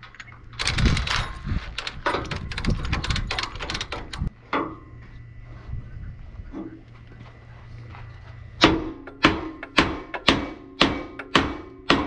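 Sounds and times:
steel chain clattering: 0.0 - 4.3.

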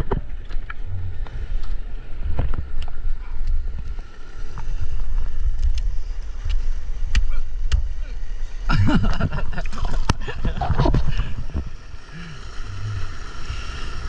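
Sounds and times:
small underwater clicks: 0.0 - 7.9
muffled underwater river rumble: 0.0 - 14.0.

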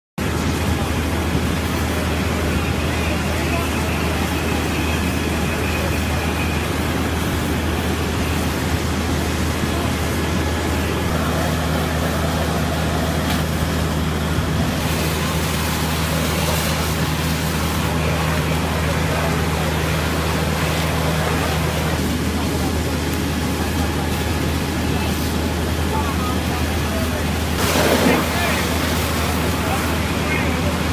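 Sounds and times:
diesel pump engines droning: 0.2 - 30.9
higher steady hum: 0.2 - 30.9.

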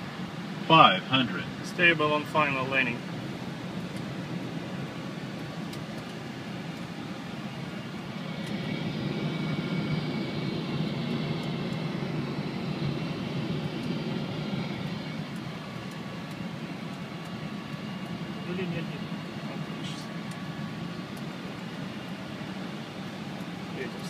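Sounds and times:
faint high whine: 0.0 - 24.0
rush of airflow with engine: 0.0 - 24.0.

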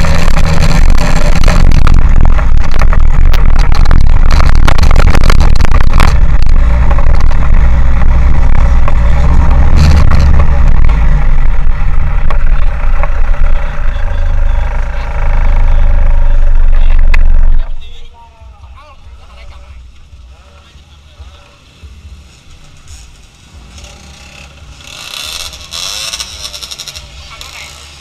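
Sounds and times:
wind on camera: 0.0 - 14.4
crackling: 0.0 - 18.1, 19.1 - 28.0
car engine rumbling: 0.0 - 28.0.

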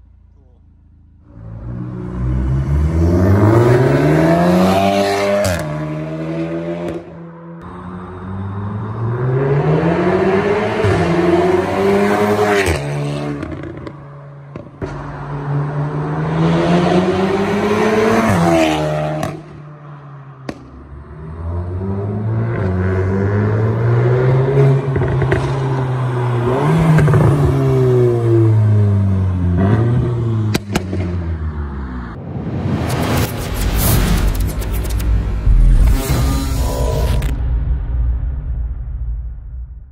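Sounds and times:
car engine accelerating hard: 1.3 - 13.9.

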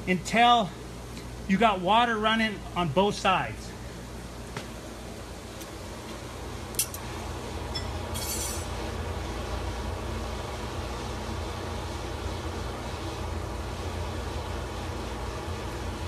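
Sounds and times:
sharp metal clink: 7.8 - 8.7.

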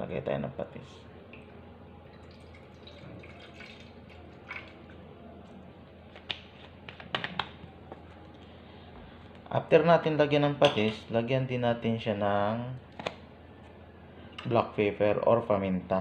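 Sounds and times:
liquid pouring into bowl: 1.3 - 5.1.

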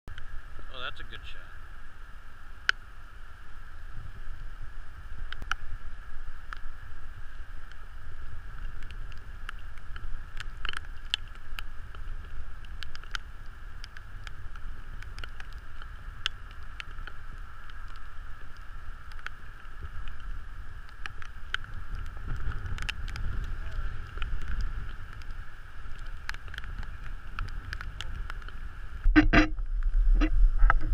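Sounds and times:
wind rumbling on microphone: 0.1 - 30.9
light clicks and taps: 8.6 - 28.6.

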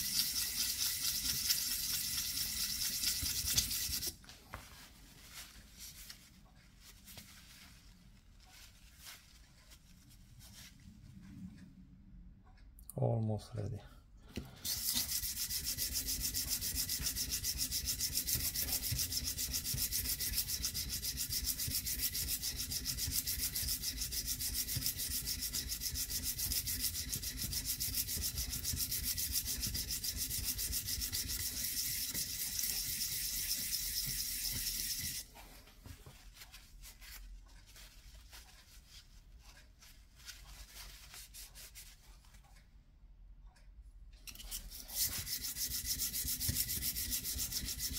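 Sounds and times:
metal rubbing on sandpaper: 0.0 - 4.1, 14.7 - 35.3, 44.3 - 47.9.

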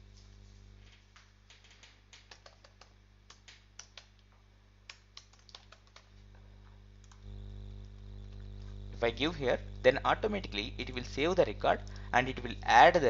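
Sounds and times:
faint typing on keyboard: 0.8 - 6.2, 7.0 - 8.1.

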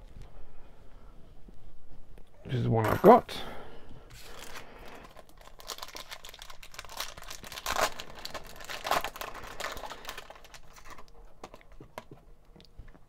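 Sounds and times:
foil pack crinkling: 4.2 - 12.1.

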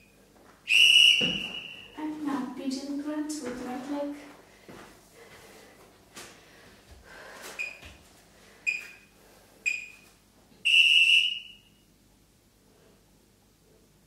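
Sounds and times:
electronic timer beeping: 7.6 - 7.8, 8.7 - 10.0.

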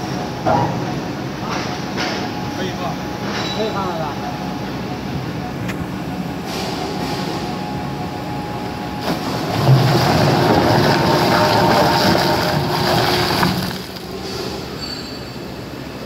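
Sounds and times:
shredder running: 9.0 - 14.2.

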